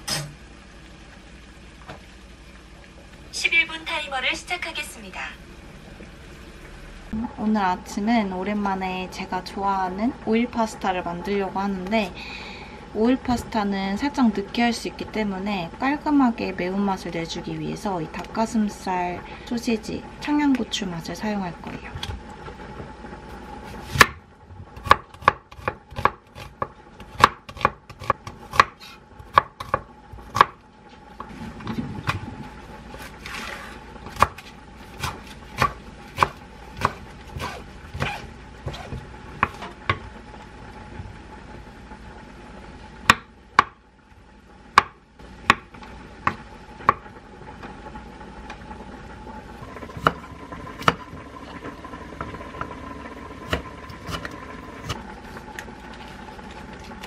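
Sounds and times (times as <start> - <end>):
knife chopping on wooden board: 24.8 - 30.6, 35.0 - 40.0.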